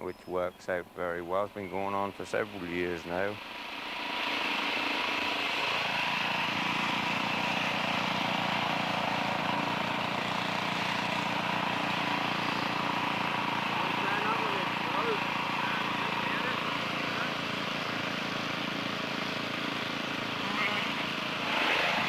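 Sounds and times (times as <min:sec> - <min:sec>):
shearing machine hum: 0:00.7 - 0:22.0
shearing handpiece cutting fleece: 0:04.0 - 0:22.0.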